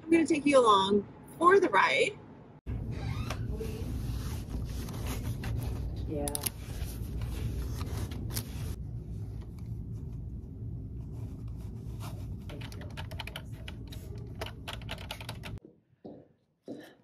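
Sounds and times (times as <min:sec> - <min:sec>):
steady low hum: 0:02.3 - 0:15.6
computer keyboard typing: 0:12.5 - 0:15.6.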